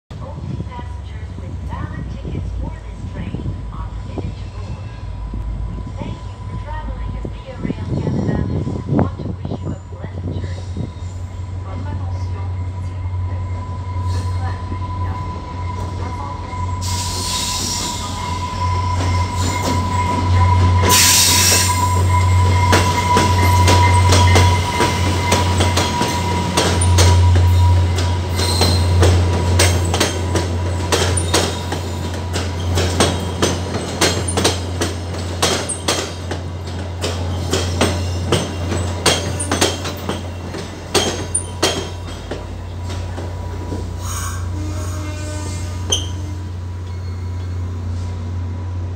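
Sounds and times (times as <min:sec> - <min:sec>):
diesel locomotive rumble: 0:00.1 - 0:48.9
high squeal: 0:12.8 - 0:34.6, 0:44.0 - 0:47.8
air brake hisses: 0:16.8 - 0:17.8
wheels clicking over rail joints: 0:22.7 - 0:44.0.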